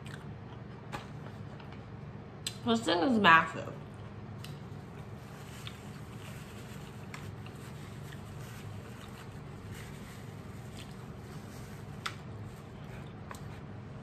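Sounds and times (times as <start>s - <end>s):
faint clicks and rustles: 4.4s - 13.7s.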